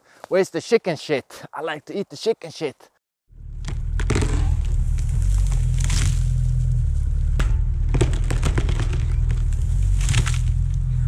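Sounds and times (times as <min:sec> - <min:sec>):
wood cracking and snapping: 0:03.6 - 0:10.8.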